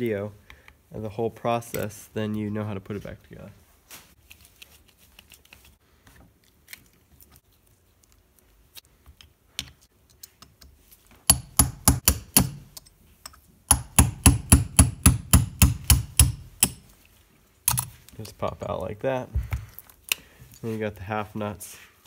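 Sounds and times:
clicks of parts handled: 1.7s - 2.0s, 17.7s - 18.4s
hammer tapping metal: 11.3s - 16.9s.

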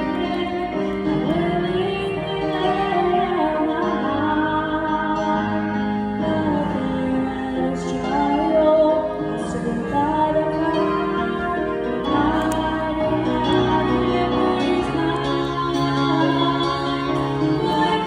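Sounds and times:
keyboard accompaniment: 0.0s - 18.0s
woman singing gospel song: 6.2s - 18.0s.

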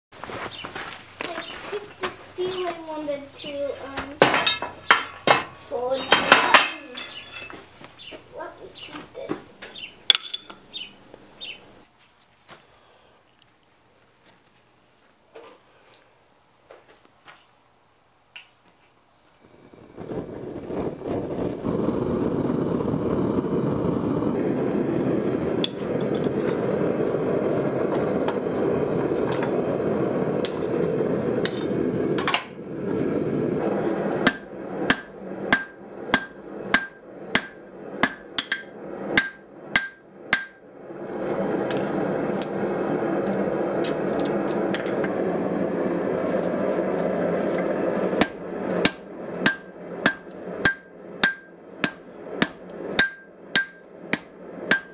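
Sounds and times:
forge burner rushing: 0.2s - 11.6s, 19.0s - 54.9s
hammer striking metal on anvil: 9.6s - 10.7s, 34.2s - 40.6s, 48.2s - 54.9s.

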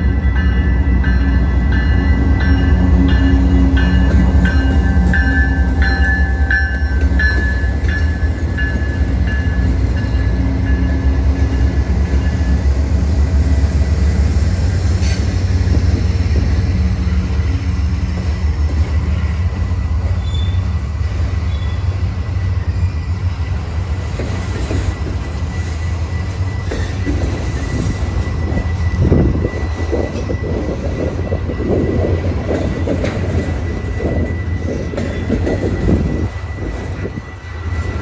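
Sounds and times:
rail cars rattling: 0.0s - 38.0s
train wheels rumbling on rail: 0.0s - 38.0s.

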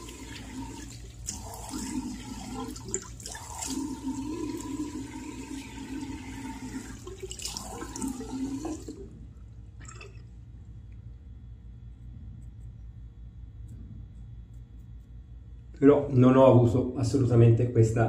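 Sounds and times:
tap water running into sink: 0.0s - 9.0s.

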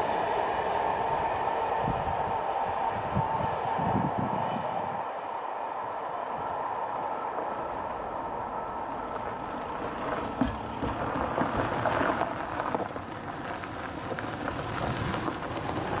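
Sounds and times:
tyres crunching on gravel: 6.3s - 16.0s
car thumping over crossing: 9.2s - 15.4s.

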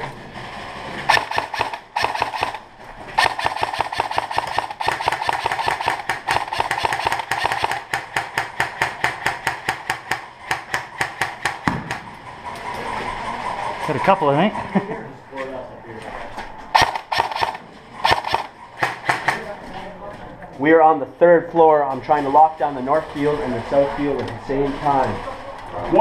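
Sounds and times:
airsoft rifle rapid shots: 1.1s - 12.0s, 16.7s - 19.4s.

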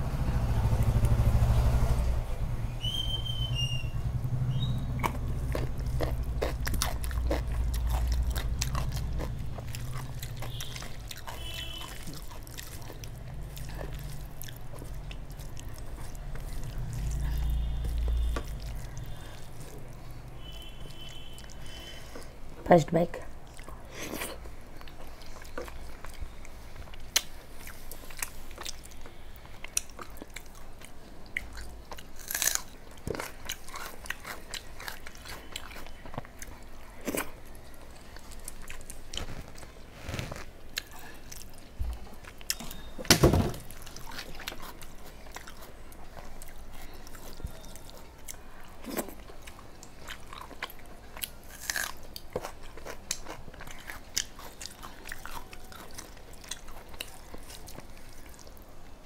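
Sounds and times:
person chewing food: 4.6s - 22.4s, 23.4s - 42.9s, 43.7s - 58.7s
short crunches: 39.1s - 40.5s.

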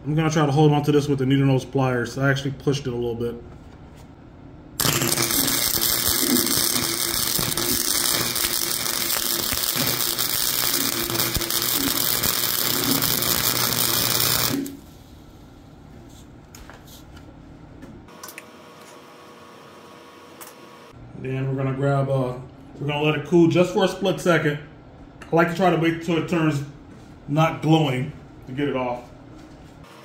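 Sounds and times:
welder arc crackling: 4.8s - 15.0s.

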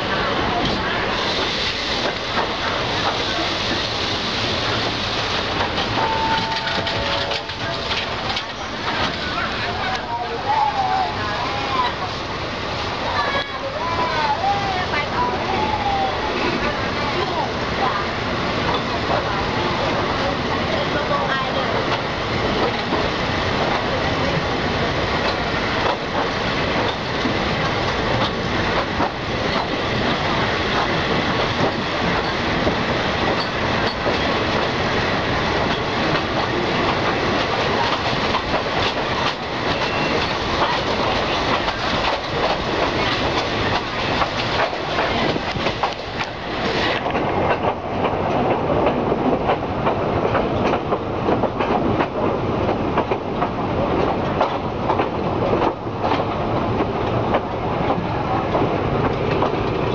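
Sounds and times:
train coaches running noise: 0.0s - 59.9s
wheels clacking over rail joints: 4.6s - 10.4s, 20.8s - 59.9s.

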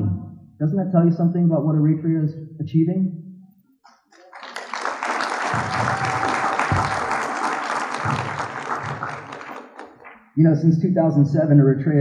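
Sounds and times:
audience applause: 4.1s - 10.3s.

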